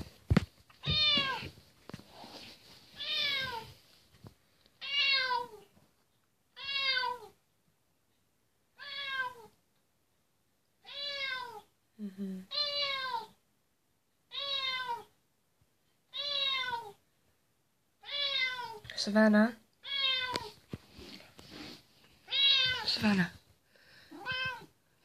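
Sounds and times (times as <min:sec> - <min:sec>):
cat meowing: 0:00.8 - 0:01.5, 0:03.0 - 0:03.7, 0:04.8 - 0:05.6, 0:06.6 - 0:07.4, 0:08.8 - 0:09.5, 0:10.8 - 0:11.7, 0:12.5 - 0:13.4, 0:14.3 - 0:15.1, 0:16.1 - 0:17.0, 0:18.0 - 0:18.9, 0:19.8 - 0:20.6, 0:22.2 - 0:23.0, 0:24.1 - 0:24.7.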